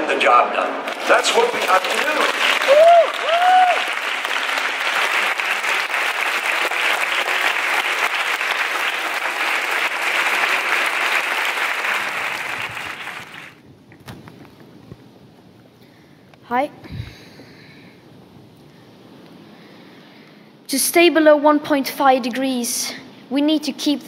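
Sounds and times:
audience applauding: 0.8s - 13.6s.

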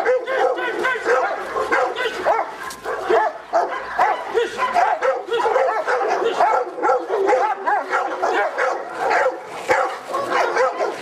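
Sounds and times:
dog barking rapidly: 0.0s - 11.0s.

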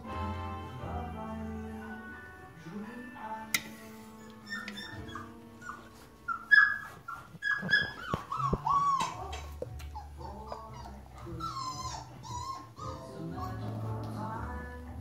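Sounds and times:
puppies whimpering and squeaking: 3.8s - 14.6s.

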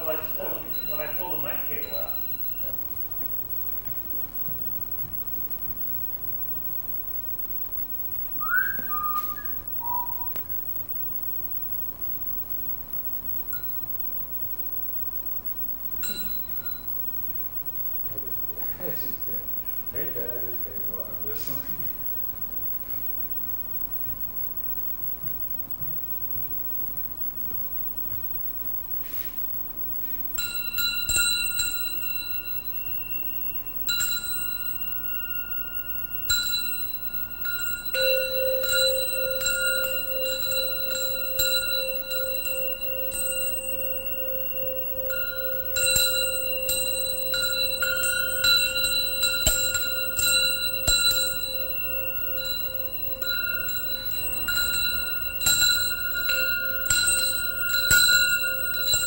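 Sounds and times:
metal percussion ringing: 0.0s - 2.9s, 16.0s - 17.0s, 30.4s - 59.0s.

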